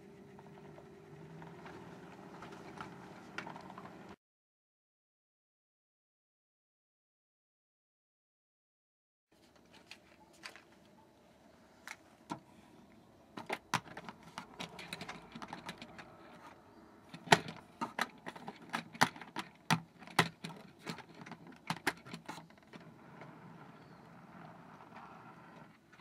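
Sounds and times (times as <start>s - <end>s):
plastic model train clicking on rails: 13.4s - 23.4s.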